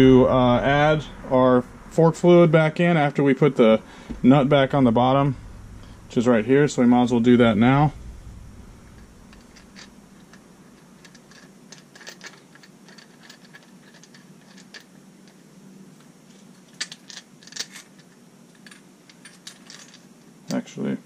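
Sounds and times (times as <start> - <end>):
faint steady hum: 0.0 - 21.0
metal parts clicking and tapping: 8.9 - 15.4, 16.3 - 20.6.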